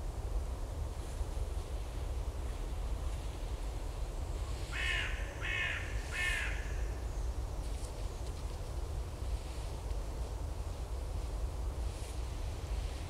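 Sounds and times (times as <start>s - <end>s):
wind rumble on microphone: 0.0s - 13.0s
crow cawing: 4.7s - 6.8s.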